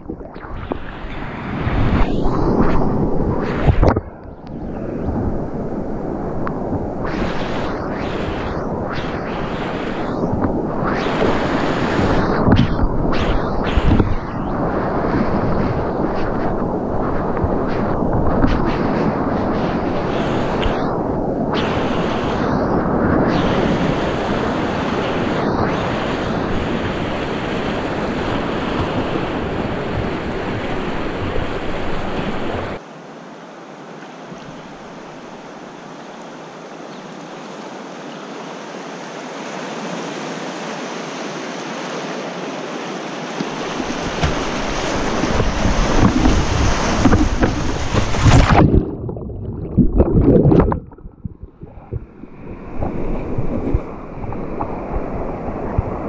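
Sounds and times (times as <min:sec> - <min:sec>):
water splashing: 0:00.0 - 0:22.0, 0:43.4 - 0:56.0
rapids rushing: 0:43.4 - 0:51.1.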